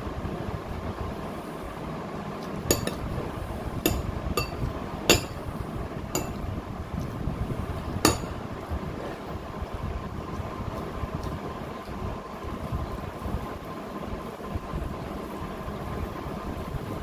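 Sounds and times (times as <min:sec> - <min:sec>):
metal spoon clinking on glass bowl: 0:02.7 - 0:03.0, 0:03.9 - 0:05.4, 0:06.2 - 0:06.4, 0:08.1 - 0:08.4
steady low rumble: 0:02.7 - 0:13.4.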